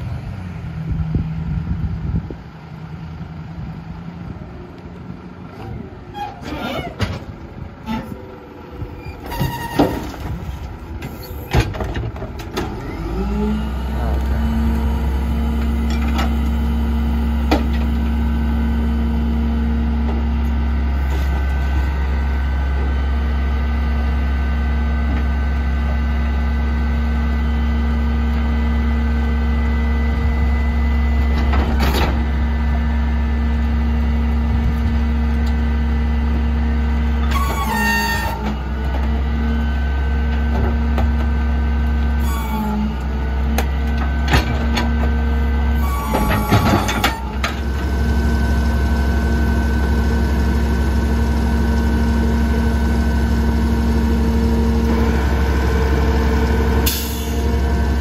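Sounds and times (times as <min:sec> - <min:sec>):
garbage truck engine running: 0:00.0 - 0:58.0
hydraulic whine: 0:37.0 - 0:39.9, 0:42.1 - 0:58.0.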